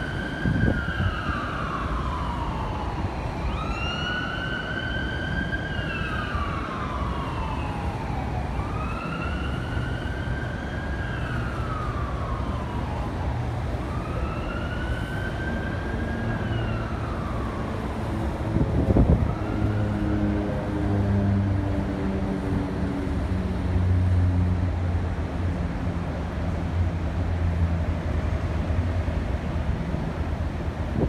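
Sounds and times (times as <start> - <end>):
emergency siren wailing: 0.0 - 24.7
city traffic noise: 0.0 - 31.0.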